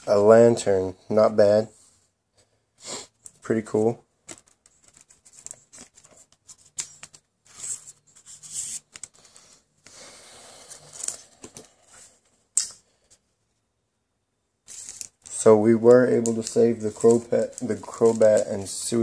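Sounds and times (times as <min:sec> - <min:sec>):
trading cards shuffling: 0:04.2 - 0:09.5, 0:10.7 - 0:12.7, 0:14.7 - 0:19.0.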